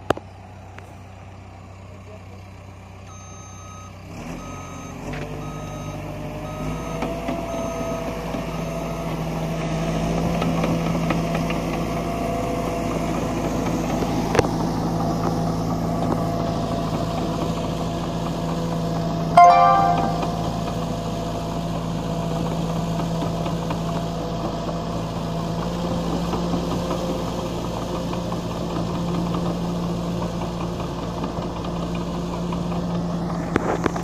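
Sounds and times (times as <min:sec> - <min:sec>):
bulldozer diesel engine: 0:00.0 - 0:34.0
backup alarm beeping: 0:19.4 - 0:20.7.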